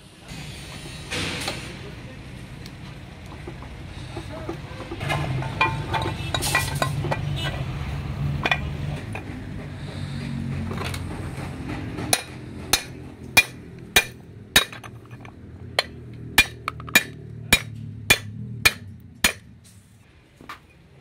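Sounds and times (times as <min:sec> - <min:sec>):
sharp metallic taps: 0:11.6 - 0:19.5.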